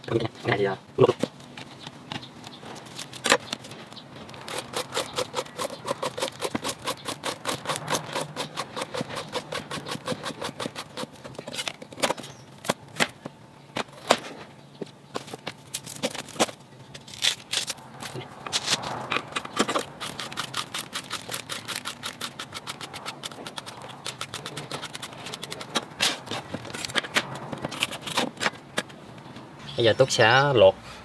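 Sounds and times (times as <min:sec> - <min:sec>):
peeler scraping bamboo skin: 0:02.8 - 0:12.3, 0:15.7 - 0:28.6.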